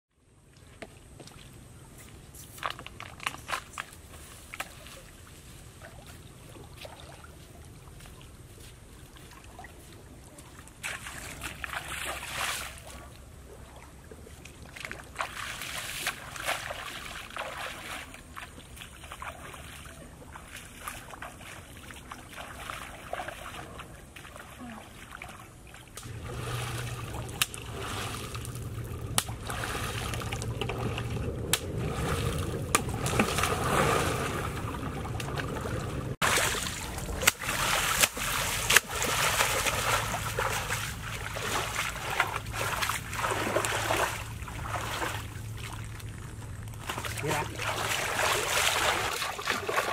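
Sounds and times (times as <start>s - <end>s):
water sloshing while wading: 0.6s - 49.9s
hard splashing in water: 14.7s - 46.2s, 46.8s - 49.9s.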